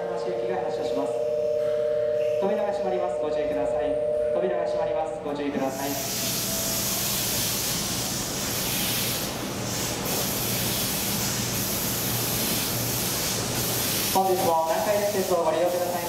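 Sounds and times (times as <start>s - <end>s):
steady hiss: 5.7s - 16.0s.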